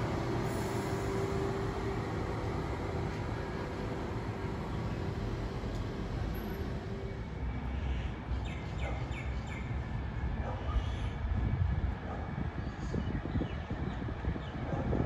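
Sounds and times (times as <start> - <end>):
electric train humming: 0.0 - 7.7.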